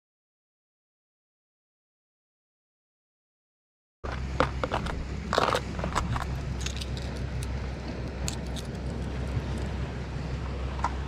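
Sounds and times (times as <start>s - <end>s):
steady low rumble: 4.0s - 11.0s
fishing tackle clicking: 5.4s - 9.7s.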